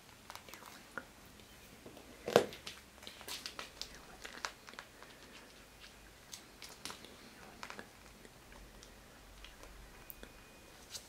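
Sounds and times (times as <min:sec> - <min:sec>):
cat gnawing hard plastic: 0:02.2 - 0:09.8.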